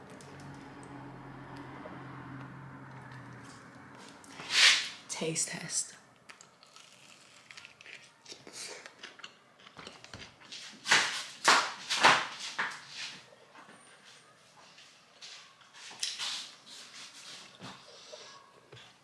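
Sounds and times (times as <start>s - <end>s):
chewing bread: 6.2s - 10.5s.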